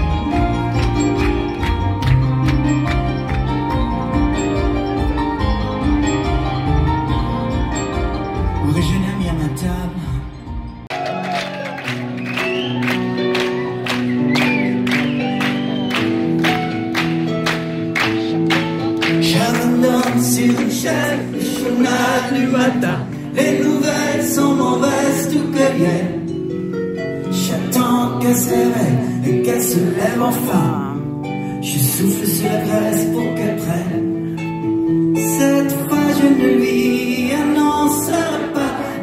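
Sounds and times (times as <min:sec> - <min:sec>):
plucked harp and guitars: 0:00.0 - 0:10.8, 0:13.0 - 0:39.0
person singing: 0:18.1 - 0:26.3, 0:27.3 - 0:34.5, 0:35.1 - 0:39.0.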